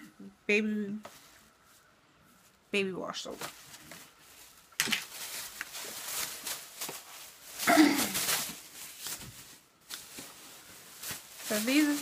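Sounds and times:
plastic bag rustling: 0:03.2 - 0:12.0.

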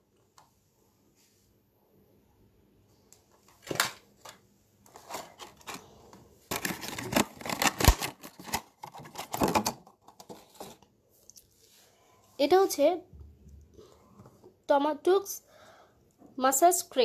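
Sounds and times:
plastic packaging rustling: 0:03.5 - 0:10.8
plastic containers clicking and knocking: 0:06.5 - 0:10.8.

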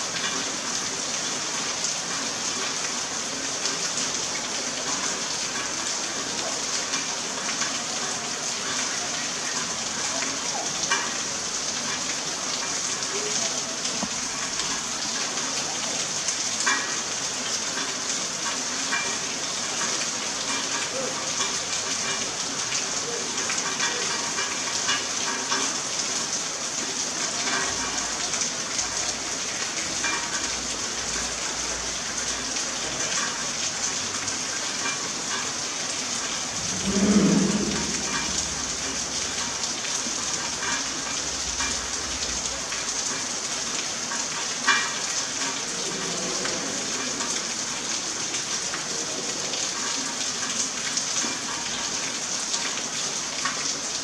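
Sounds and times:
rain falling steadily: 0:00.0 - 0:54.0
brief low-pitched sound: 0:36.5 - 0:39.2.

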